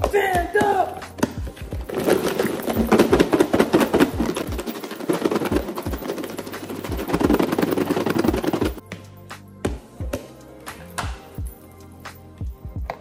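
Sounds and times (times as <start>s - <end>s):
chicken rattling in plastic container: 1.8s - 8.8s.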